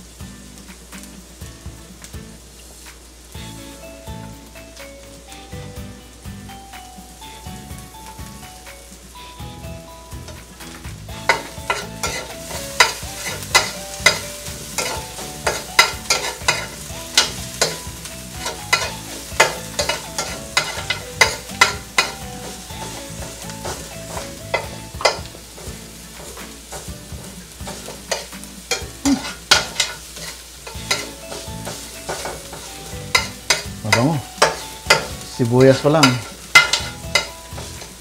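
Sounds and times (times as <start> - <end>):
onions sizzling: 0.0 - 38.0
spoon scraping frying pan: 10.3 - 38.0
spoon clinking on pan: 11.3 - 17.8, 18.4 - 25.3, 27.7 - 37.9.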